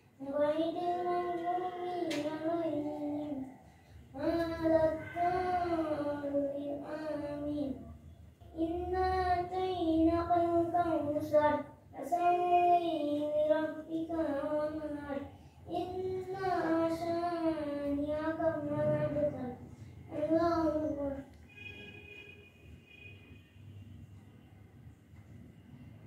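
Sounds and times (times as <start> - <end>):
child chanting: 0.2 - 21.4
child breathing: 3.2 - 4.2, 19.6 - 20.1.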